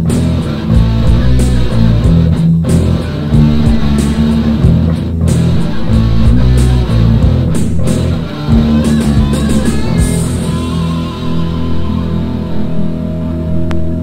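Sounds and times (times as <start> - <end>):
rock band playing: 0.0 - 14.0.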